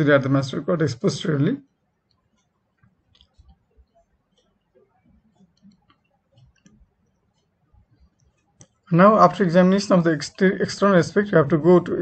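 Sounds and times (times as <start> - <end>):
faint clicks: 1.6 - 8.9.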